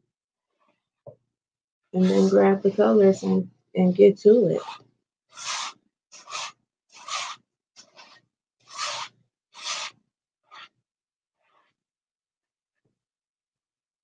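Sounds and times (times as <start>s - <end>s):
gloved hand rubbing canvas: 2.0s - 3.0s, 4.6s - 11.9s.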